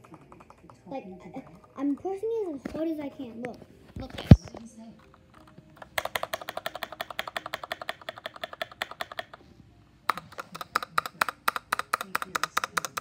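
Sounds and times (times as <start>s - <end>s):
mechanical keyboard key clicks: 5.4s - 9.4s, 10.1s - 13.0s.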